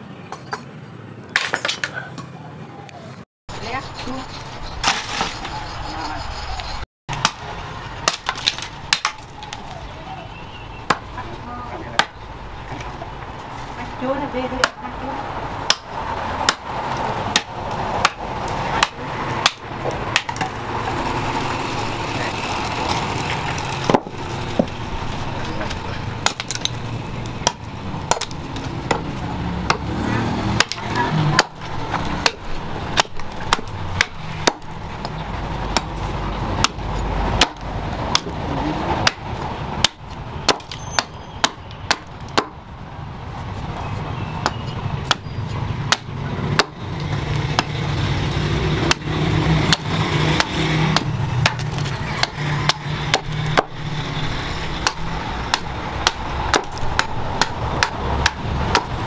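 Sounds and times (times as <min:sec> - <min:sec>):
axe chopping wood: 0:07.1 - 0:09.7, 0:11.9 - 0:12.2, 0:14.6 - 0:14.8, 0:15.6 - 0:20.6, 0:23.8 - 0:24.8, 0:25.6 - 0:36.0, 0:36.6 - 0:38.4, 0:39.0 - 0:42.6, 0:44.4 - 0:45.3, 0:45.9 - 0:53.9, 0:54.8 - 0:59.0.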